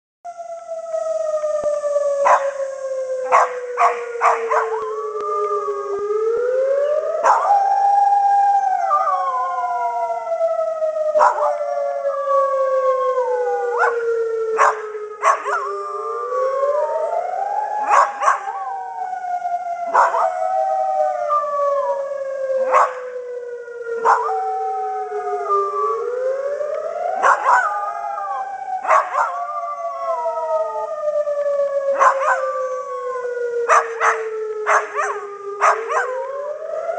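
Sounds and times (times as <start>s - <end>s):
civil defence siren wailing: 0.3s - 36.9s
dog howling: 2.2s - 6.0s, 6.6s - 10.2s, 11.1s - 19.1s, 19.8s - 23.2s, 24.0s - 26.1s, 27.1s - 30.9s, 31.8s - 36.6s.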